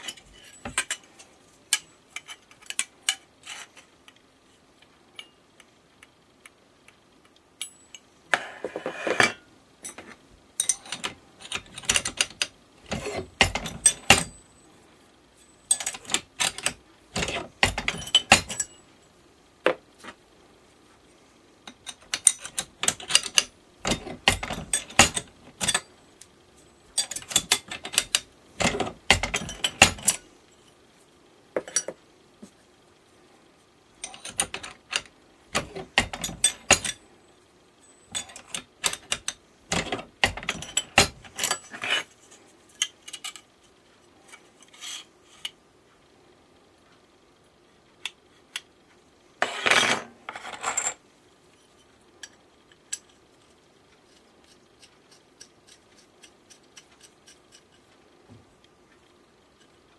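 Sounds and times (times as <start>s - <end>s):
metal clicks and clanks: 0.0s - 3.9s, 9.8s - 14.4s, 15.6s - 18.8s, 21.7s - 25.9s, 26.9s - 30.3s, 34.0s - 37.0s, 38.1s - 42.1s.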